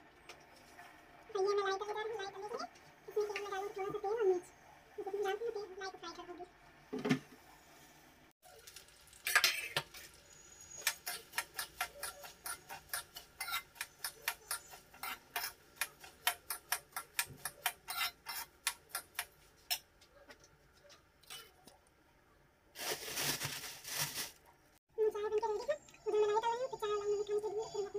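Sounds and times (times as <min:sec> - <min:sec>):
metal ladle scraping a steel pan: 0:17.5 - 0:19.0.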